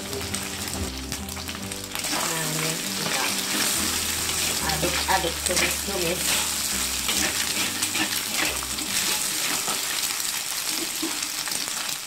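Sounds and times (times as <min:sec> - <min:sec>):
food sizzling in a wok: 0:00.0 - 0:12.0
spatula scraping and tapping pan: 0:03.0 - 0:10.1.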